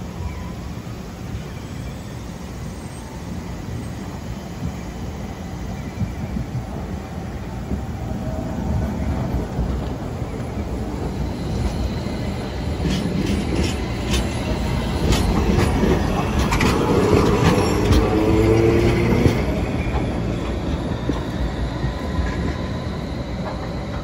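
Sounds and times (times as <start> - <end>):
tram rumbling: 0.0 - 24.0
tram wheels clacking over rail joints: 5.8 - 24.0.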